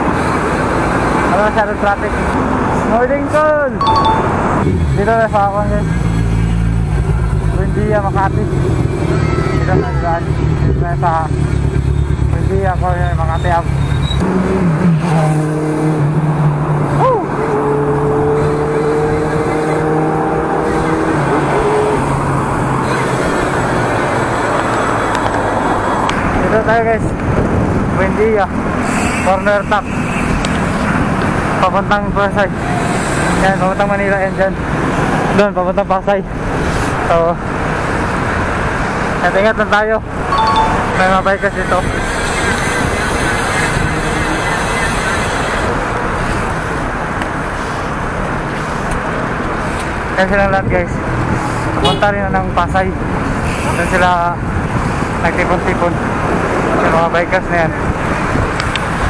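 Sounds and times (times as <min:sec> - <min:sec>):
passing cars: 0:00.0 - 0:59.0
road traffic: 0:00.0 - 0:59.0
vehicle engine hum: 0:00.0 - 0:59.0
wind over microphone: 0:23.8 - 0:28.7, 0:54.4 - 0:59.0
wind on microphone: 0:27.0 - 0:28.0, 0:57.8 - 0:59.0.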